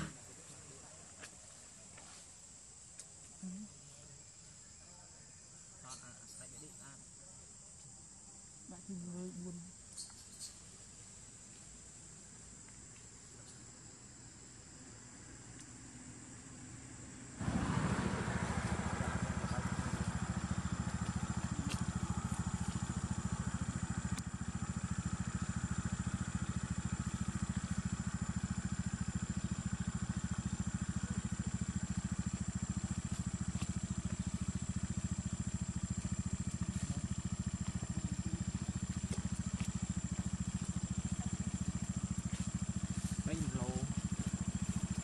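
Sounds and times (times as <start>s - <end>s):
engine idling: 17.4s - 45.0s.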